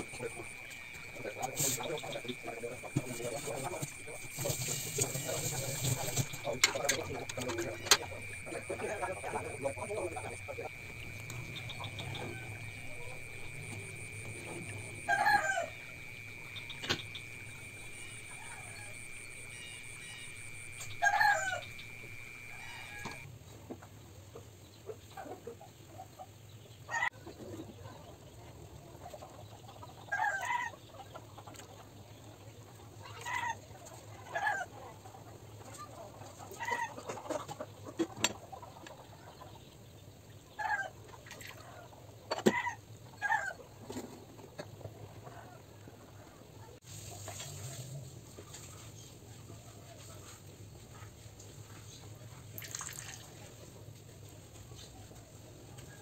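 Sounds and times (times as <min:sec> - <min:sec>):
chicken calling: 0:00.0 - 0:23.3
chickens clucking: 0:00.0 - 0:52.5.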